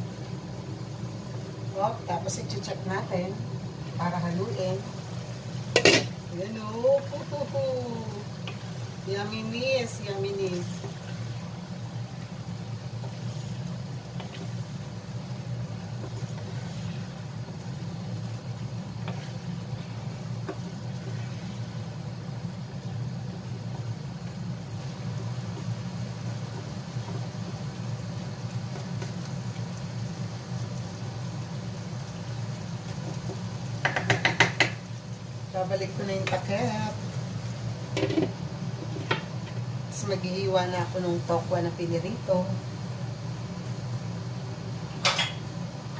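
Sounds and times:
food sizzling in a pan: 0.0 - 45.9
low mechanical hum: 0.0 - 45.9
wooden spatula scraping a pan: 15.8 - 17.8, 18.9 - 21.8.

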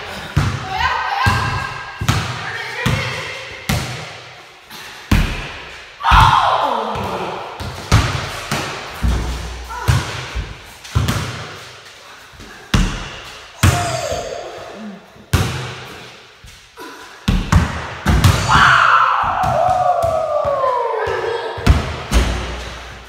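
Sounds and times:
basketballs bouncing on hard floor: 0.0 - 4.2, 5.1 - 11.6, 12.7 - 14.4, 17.3 - 23.0.

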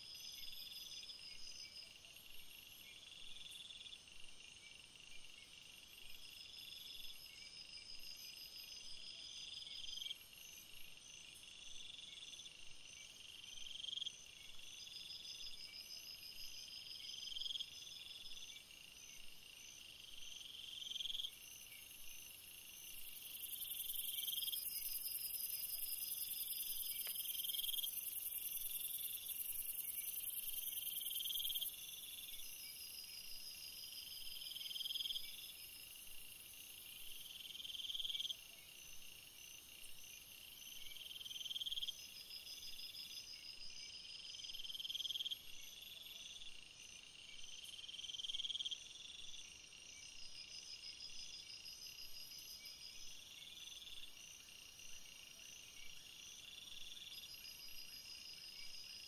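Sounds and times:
insect pulsed trills: 11.9 - 59.0.

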